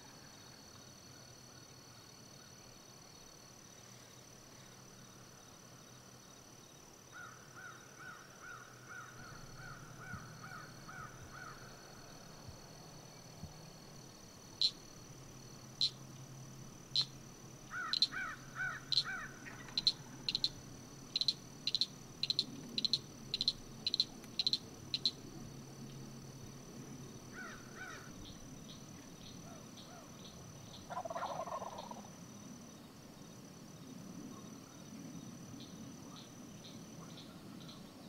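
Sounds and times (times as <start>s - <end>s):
insect high trill: 7.1s - 32.9s
sharp high chip calls: 17.0s - 20.6s, 21.2s - 25.2s.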